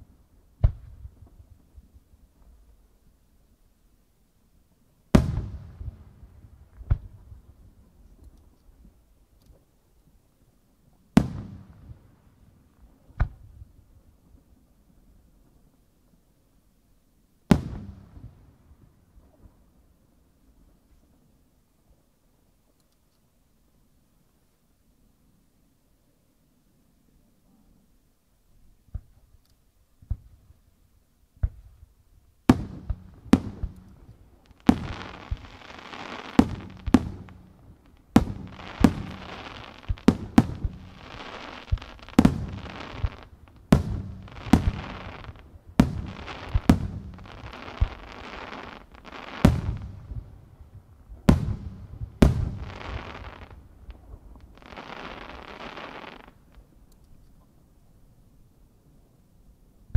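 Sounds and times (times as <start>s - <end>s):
firework crackling and hiss: 31.4s - 56.7s
firework shells bursting: 32.6s - 48.1s.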